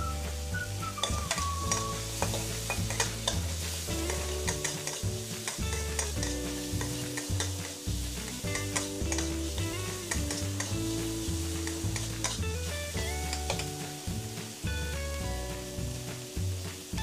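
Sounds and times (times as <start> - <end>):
metal spatula scraping wok: 0.0 - 14.6
oil sizzling: 0.0 - 17.0.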